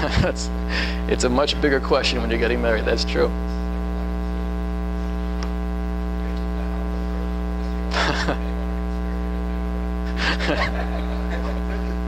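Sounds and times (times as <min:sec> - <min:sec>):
electrical mains hum: 0:00.0 - 0:12.0
voice: 0:00.0 - 0:12.0.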